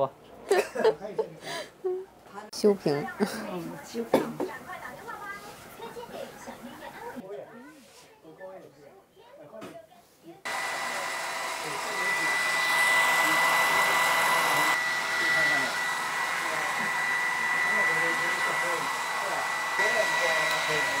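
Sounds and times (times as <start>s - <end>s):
hair dryer running: 10.5s - 21.0s.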